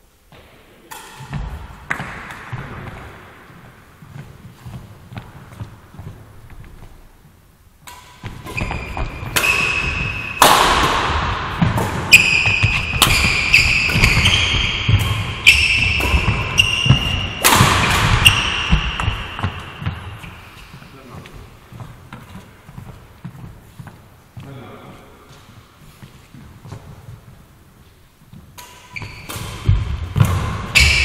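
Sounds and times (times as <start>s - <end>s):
racket hitting shuttlecock: 0.3s - 6.9s, 7.8s - 20.8s, 28.4s - 31.0s.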